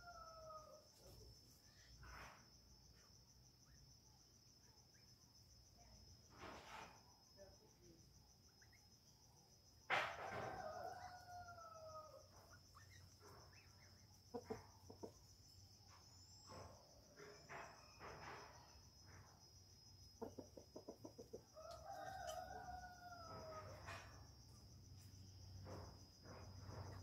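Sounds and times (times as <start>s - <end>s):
rooster crowing: 0.0s - 0.9s, 10.0s - 12.4s, 21.5s - 24.4s
high insect drone: 0.0s - 27.0s.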